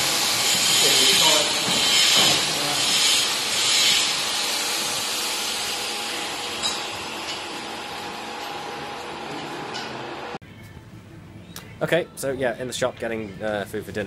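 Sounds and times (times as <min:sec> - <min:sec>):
power grinder grinding metal: 0:00.0 - 0:10.2.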